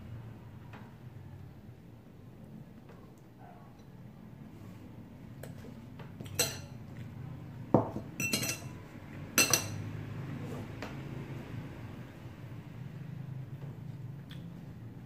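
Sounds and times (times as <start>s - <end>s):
cutlery clinking on glass plate: 6.2s - 6.8s, 7.8s - 8.8s, 9.4s - 9.8s.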